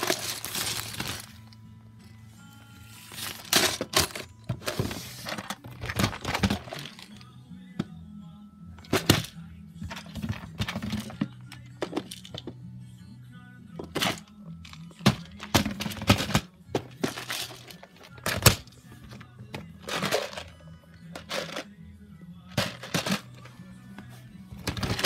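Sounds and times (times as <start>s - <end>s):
background music: 0.0s - 25.0s
plastic bricks knocking and rattling: 3.2s - 7.2s, 8.8s - 12.6s, 13.8s - 20.5s, 21.2s - 21.7s, 22.5s - 23.4s, 24.6s - 25.0s.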